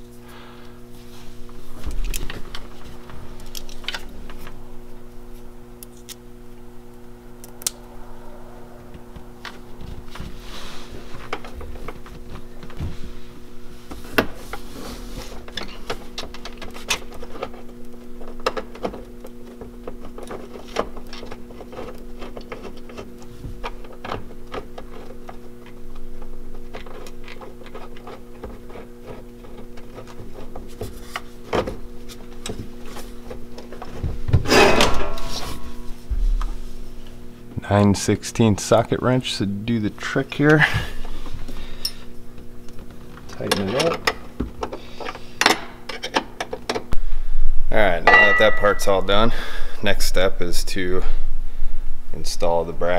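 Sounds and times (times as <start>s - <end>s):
hardware clatter: 48.0s - 49.2s.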